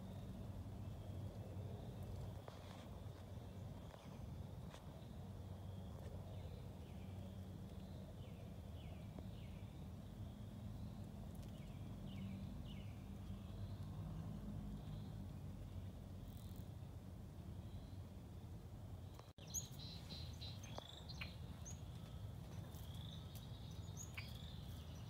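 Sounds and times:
low steady hum: 0.0 - 25.0
faint bird chirps: 19.1 - 25.0.

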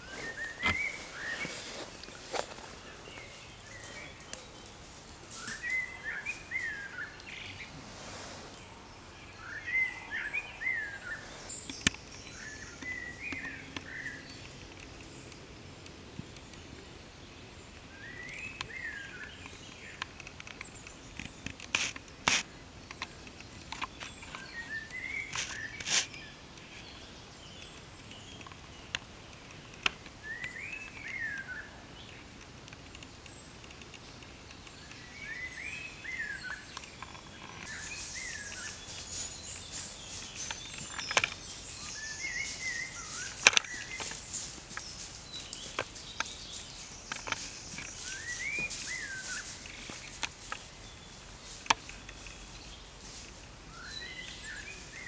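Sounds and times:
light outdoor hiss: 0.0 - 55.0
songbird warbling: 34.9 - 50.1.

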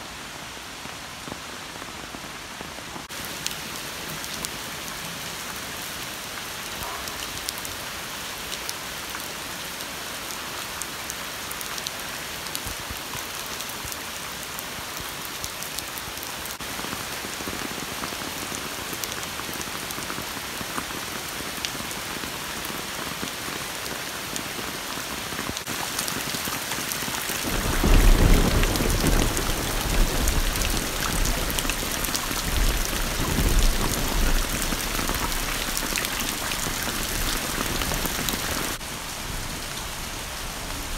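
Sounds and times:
rain pattering on puddles: 0.8 - 40.9.

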